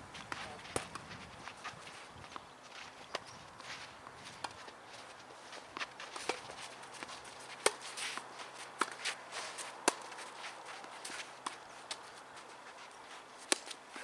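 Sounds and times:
footsteps scuffing on clay court: 0.0s - 14.0s
tennis ball bouncing: 0.2s - 1.7s, 5.7s - 12.2s
racket striking tennis ball: 7.6s - 10.2s, 13.4s - 13.8s.

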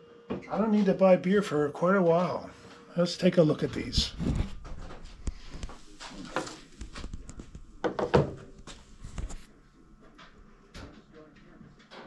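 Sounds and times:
camera handling knocks on wooden table: 7.8s - 8.4s.

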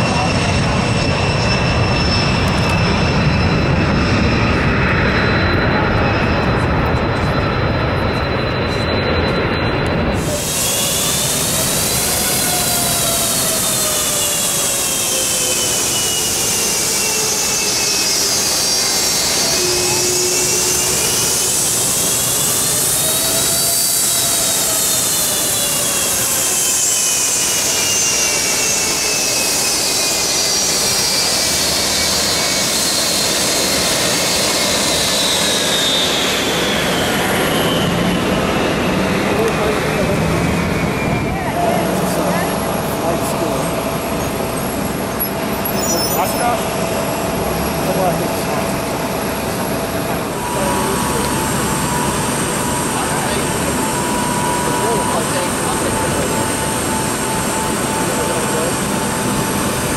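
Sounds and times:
jet turbine whining: 0.0s - 59.9s.

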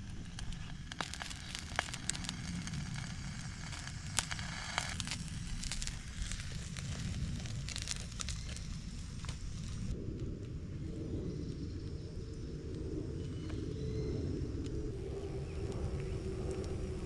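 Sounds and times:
batter sizzling: 0.0s - 10.0s
campfire crackles and pops: 0.0s - 17.0s.

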